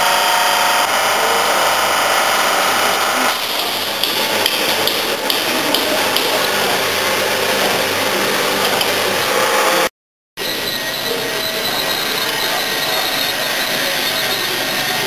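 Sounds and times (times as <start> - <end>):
mixer mechanical drone: 0.0 - 15.0
sharp metallic clicks: 3.5 - 6.4.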